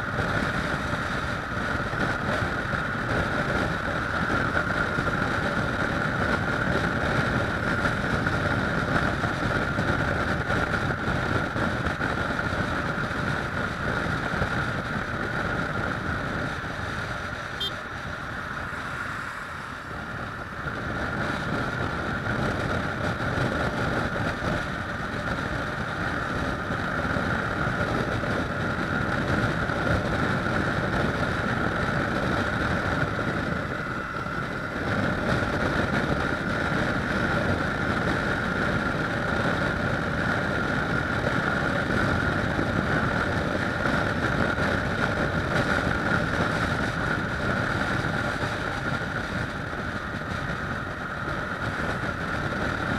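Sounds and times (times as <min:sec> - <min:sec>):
motorcycle engine running: 0:00.0 - 0:52.9
wind rushing over microphone: 0:00.0 - 0:52.9.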